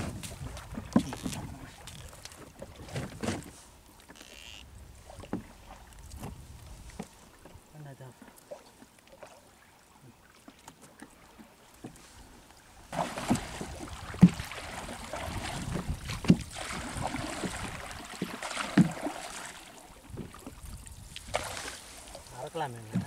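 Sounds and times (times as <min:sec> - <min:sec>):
water splashing against boat: 0:00.0 - 0:23.0.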